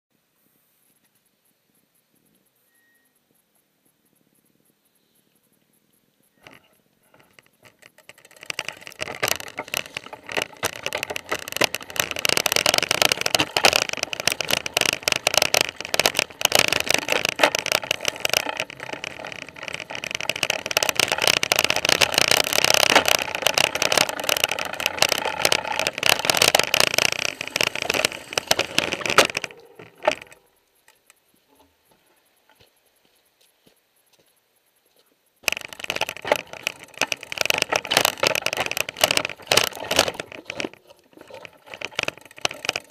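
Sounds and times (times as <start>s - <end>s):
mountain bike rattling over rocks: 6.4s - 31.2s, 35.4s - 42.9s.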